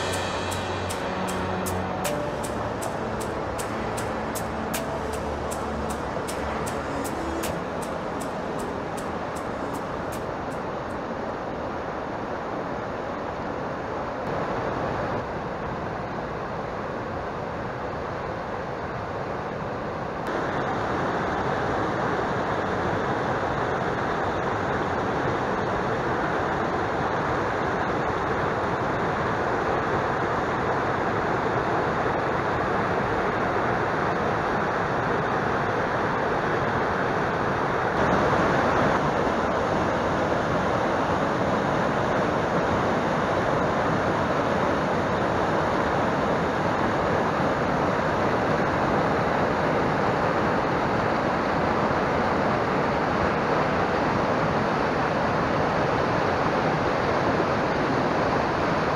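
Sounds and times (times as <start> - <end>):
stream rushing over boulders: 20.3 - 58.9.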